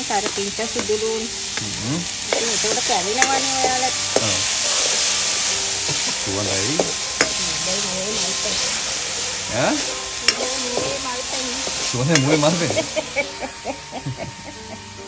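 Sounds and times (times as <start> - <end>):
onions sizzling in hot oil: 0.0 - 15.0
spatula scraping wok: 0.0 - 15.0
spatula clicking on metal: 10.3 - 10.6.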